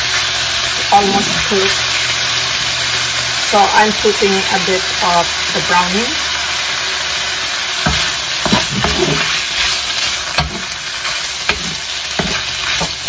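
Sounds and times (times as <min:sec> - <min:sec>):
chicken sizzling in hot oil: 0:00.0 - 0:13.0
wooden spoon scraping a pan: 0:07.9 - 0:13.0.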